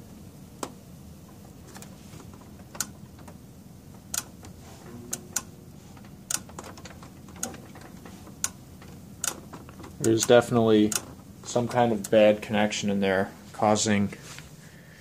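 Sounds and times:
faint hum: 0.0 - 15.0
sharp clicking inside monitor: 0.5 - 12.4.

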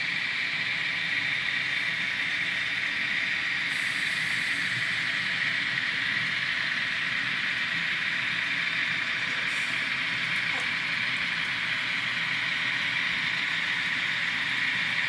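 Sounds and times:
model train rolling on track: 0.0 - 15.0.

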